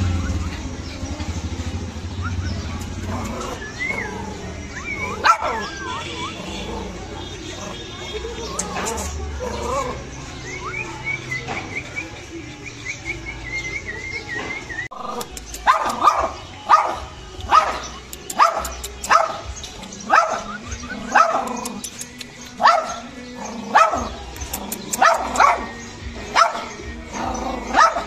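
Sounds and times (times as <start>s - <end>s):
small dog barking: 4.9s - 7.0s, 15.6s - 21.8s, 22.6s - 23.1s, 23.7s - 24.1s, 24.9s - 26.8s, 27.5s - 28.0s.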